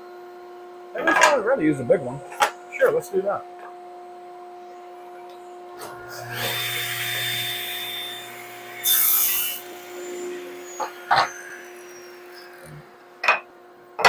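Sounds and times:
saw blade winding down whine: 4.7s - 13.2s
table saw cutting wood: 4.8s - 14.0s.

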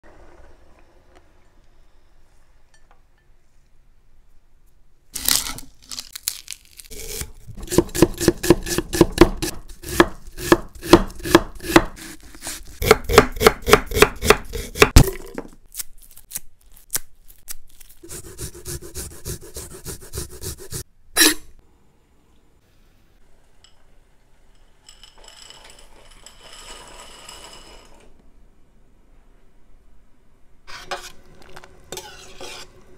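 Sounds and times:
knife chopping on wooden board: 7.6s - 12.1s, 12.8s - 15.0s.

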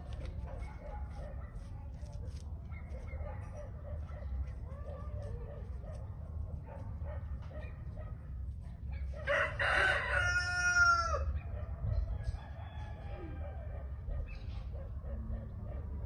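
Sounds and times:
rooster crowing: 9.2s - 11.4s, 12.2s - 13.7s.

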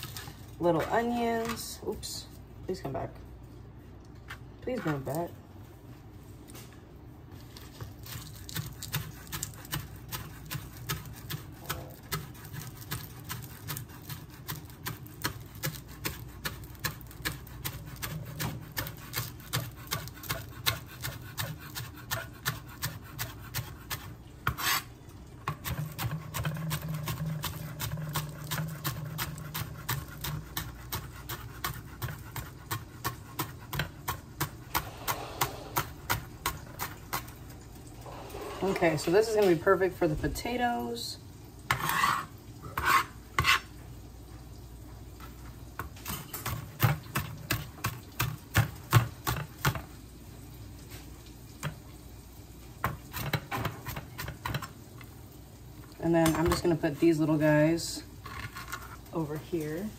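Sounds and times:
knife chopping on cutting board: 8.5s - 24.8s.

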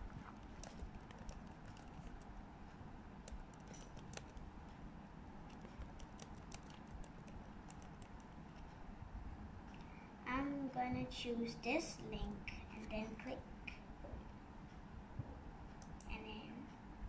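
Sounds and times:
keyboard keystroke clicks: 3.2s - 4.4s, 5.5s - 8.3s.

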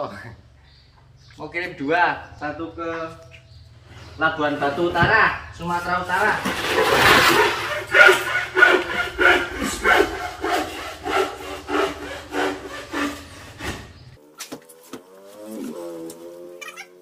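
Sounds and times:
hand saw cutting wood: 4.4s - 14.2s.

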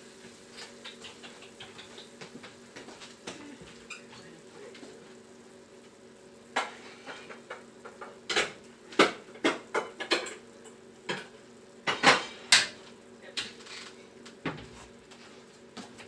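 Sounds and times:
kitchenware clinking and clacking: 0.6s - 2.2s, 6.6s - 12.8s.

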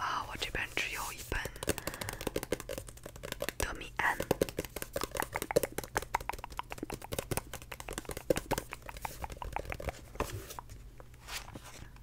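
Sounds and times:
fingernails tapping on paper cover: 1.4s - 10.7s.

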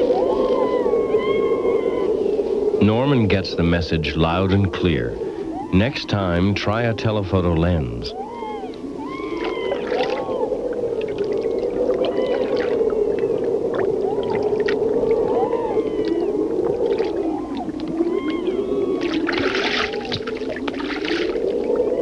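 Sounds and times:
seal warbling and chirping: 0.0s - 2.3s, 8.1s - 22.0s.

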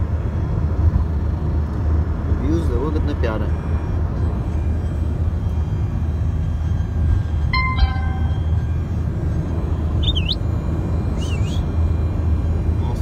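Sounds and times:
road and engine rumble in car: 0.0s - 13.0s
brief tone: 3.5s - 12.7s
short warbling chirp: 7.6s - 8.6s, 10.0s - 10.4s.

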